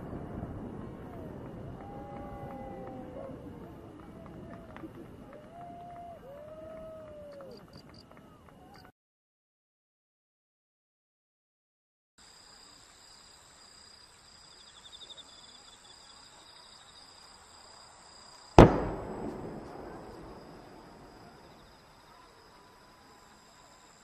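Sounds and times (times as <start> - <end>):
faint steady hiss: 12.2 - 24.0
sharp firework bang with echo: 18.6 - 21.5.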